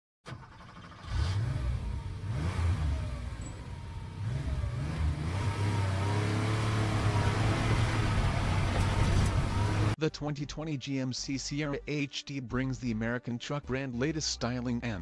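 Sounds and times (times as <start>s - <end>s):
car engine revving: 0.4s - 10.0s.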